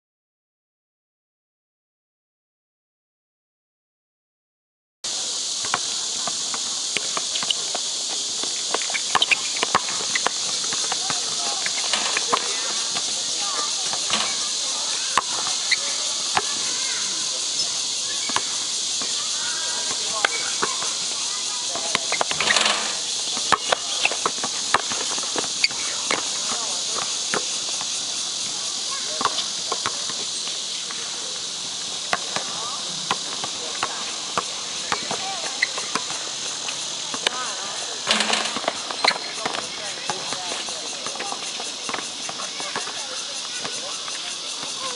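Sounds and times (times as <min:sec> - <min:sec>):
high-pitched insect drone: 0:05.1 - 0:44.9
sneakers squeaking on court: 0:05.6 - 0:31.0, 0:32.1 - 0:43.9
basketball bouncing: 0:08.7 - 0:15.7, 0:38.1 - 0:40.4.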